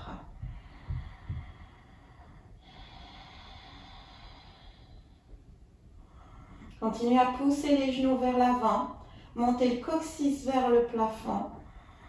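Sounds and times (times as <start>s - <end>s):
faint low bumps: 0.0s - 2.4s
woman breathing: 0.0s - 6.8s, 9.0s - 9.4s, 11.5s - 12.0s.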